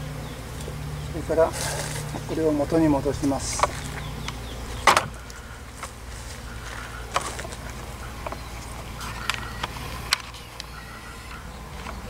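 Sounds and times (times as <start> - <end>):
honeybees buzzing: 0.0 - 12.0
wood knocks: 4.8 - 5.2.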